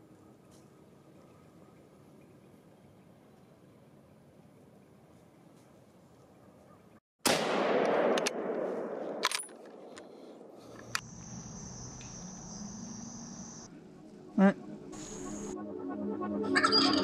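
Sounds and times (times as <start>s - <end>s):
rifle shot echoing: 7.2s - 10.6s
steady high-pitched whine: 10.6s - 17.0s.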